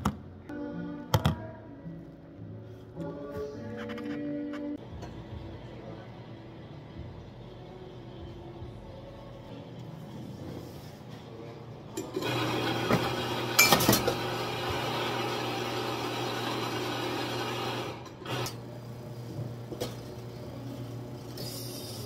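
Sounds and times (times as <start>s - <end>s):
espresso machine humming: 12.0s - 22.0s.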